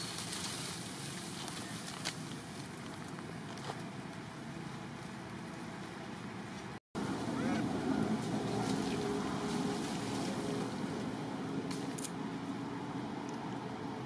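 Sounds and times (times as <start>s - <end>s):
rushing background noise: 0.0s - 14.0s.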